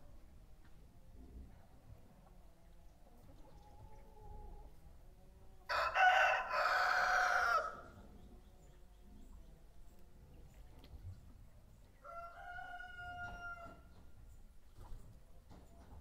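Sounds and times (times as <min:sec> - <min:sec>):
rooster crowing: 0:05.7 - 0:07.9, 0:12.0 - 0:13.8.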